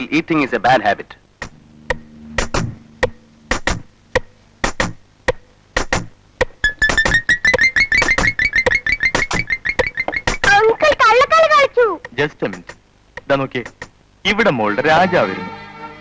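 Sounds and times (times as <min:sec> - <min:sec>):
sharp percussive hits: 0:01.4 - 0:07.2
synthesizer low held tone: 0:01.6 - 0:04.6.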